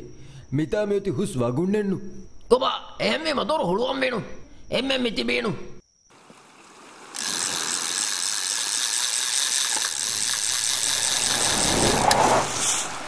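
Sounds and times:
fishing reel ratchet buzzing: 7.2s - 12.3s.

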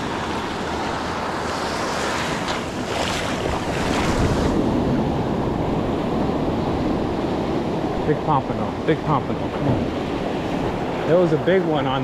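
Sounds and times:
ocean surf breaking: 0.0s - 12.0s
wind rumbling on microphone: 0.0s - 12.0s.

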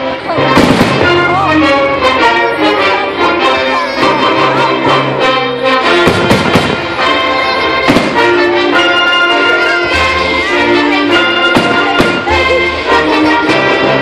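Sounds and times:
brass-led orchestral music: 0.0s - 14.0s
sharp bangs: 0.4s - 1.8s, 5.9s - 7.2s, 7.8s - 8.5s.

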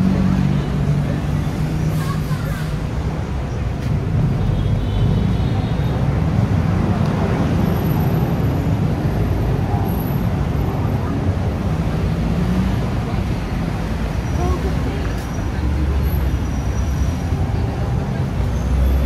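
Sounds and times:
road traffic rumble: 0.0s - 19.0s
voices of passers-by: 0.0s - 19.0s.

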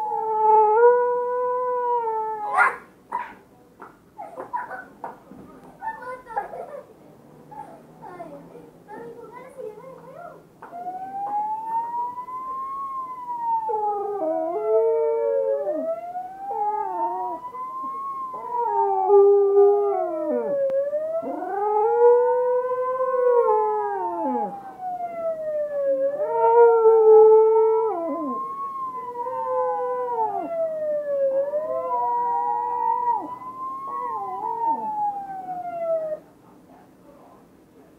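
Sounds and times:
ambulance siren wailing: 10.6s - 36.1s
dog howling: 10.6s - 36.2s.

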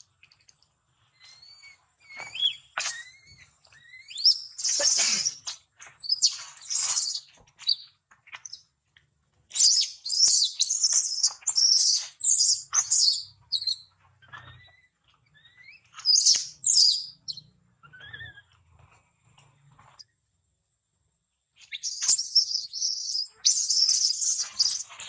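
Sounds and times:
baby monkey screaming: 1.3s - 7.2s, 21.8s - 24.8s.

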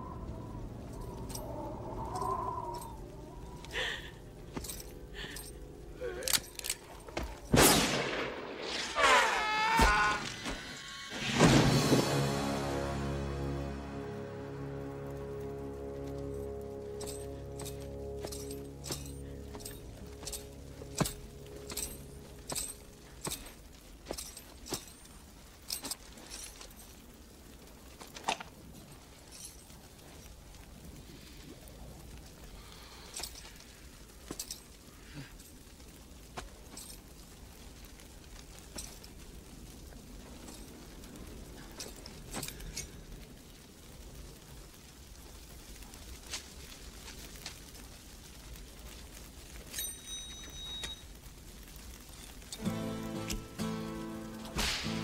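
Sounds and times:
held music chord: 11.8s - 23.1s, 52.6s - 55.0s
slow boot footsteps: 17.0s - 26.9s
spurs jingling: 17.0s - 27.0s
sharp bang: 54.6s - 55.0s.

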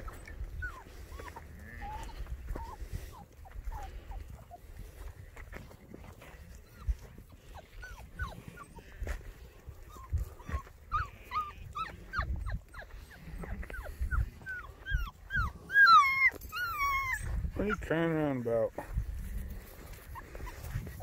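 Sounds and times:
puppy yipping and whining: 0.0s - 3.9s, 6.6s - 8.9s, 9.8s - 17.4s.

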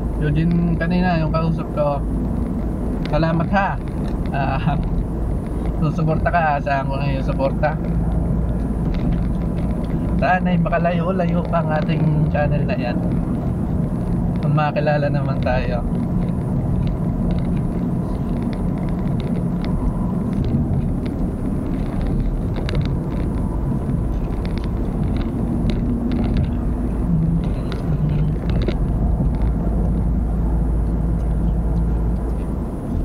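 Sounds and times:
vehicle engine rumble: 0.0s - 33.0s
light clicks and rattles: 2.2s - 33.0s.

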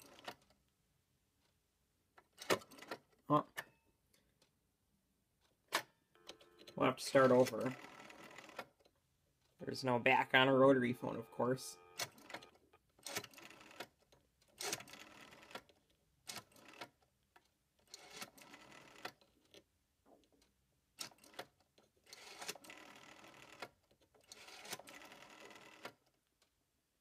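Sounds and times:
rotary telephone dial whirring: 6.2s - 8.9s, 11.8s - 15.7s, 16.3s - 17.0s, 17.8s - 19.6s, 21.0s - 26.0s.

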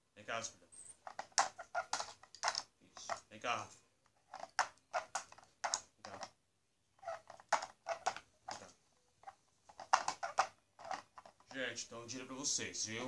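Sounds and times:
toy cars clicking and clattering: 1.0s - 6.4s, 7.0s - 11.7s.

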